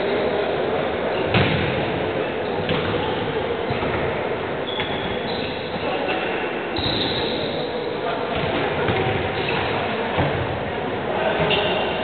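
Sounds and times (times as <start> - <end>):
sports hall noise: 0.0 - 12.0
ball thudding on wooden court: 1.3 - 1.8.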